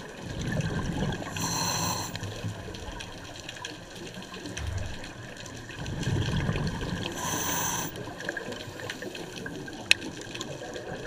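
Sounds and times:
underwater bubbles: 0.0s - 11.0s
diver breathing through regulator: 1.3s - 2.5s, 7.1s - 8.1s.

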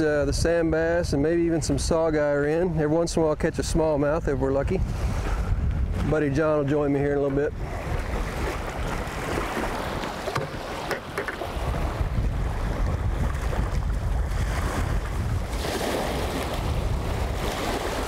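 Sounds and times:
wind buffeting microphone: 0.0s - 18.0s
small waves lapping shore: 7.3s - 18.0s.

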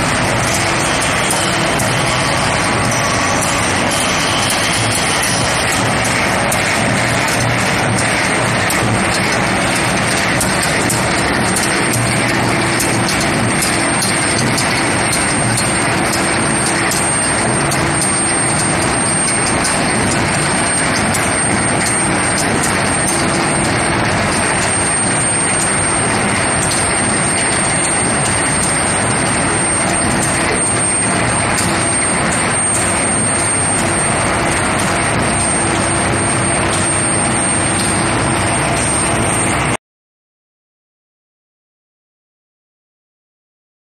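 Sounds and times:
forging machinery noise: 0.0s - 39.8s
high-pitched whine: 0.0s - 39.8s.

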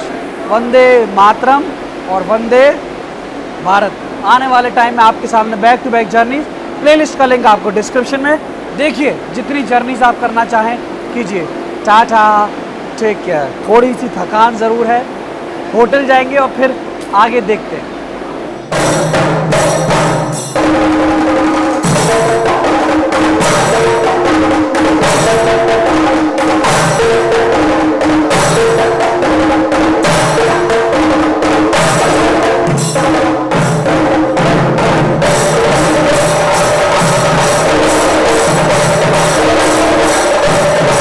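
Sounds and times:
drums played with sticks: 18.6s - 41.0s.

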